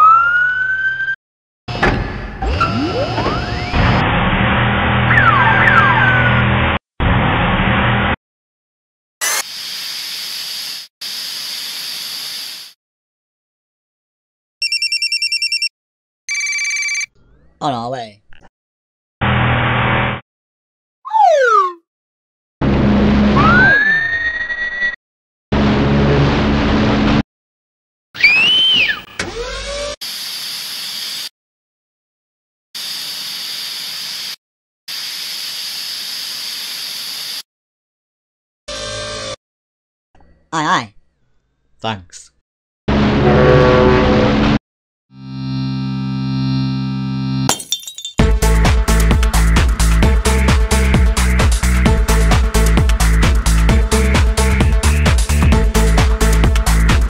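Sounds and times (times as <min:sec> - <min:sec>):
water cannon hissing spray: 0:09.3 - 0:12.8
water cannon spraying hiss: 0:09.4 - 0:12.8, 0:30.0 - 0:31.3, 0:32.8 - 0:37.4.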